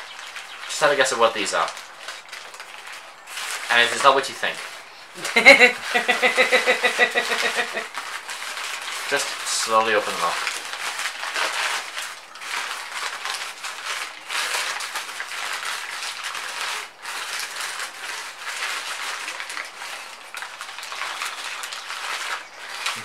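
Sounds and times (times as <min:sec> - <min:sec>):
newspaper crinkling and rustling: 0:00.0 - 0:23.0.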